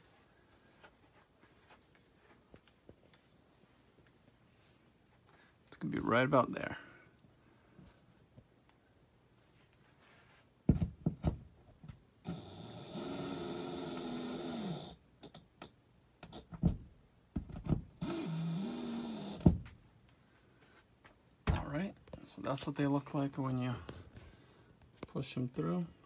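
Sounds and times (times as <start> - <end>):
drill motor running: 12.2 - 15.0, 18.0 - 19.5.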